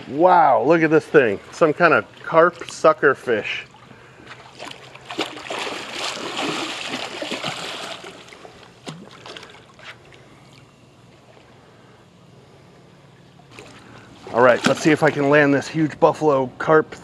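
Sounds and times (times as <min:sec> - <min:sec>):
fish splashing and thrashing in water: 0:03.5 - 0:11.5, 0:13.4 - 0:15.2.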